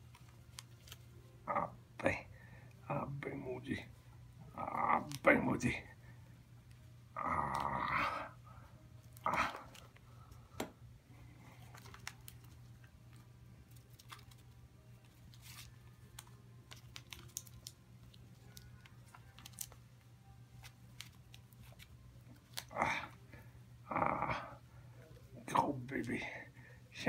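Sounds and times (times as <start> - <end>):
squirrel scuffling: 11.5 - 19.8.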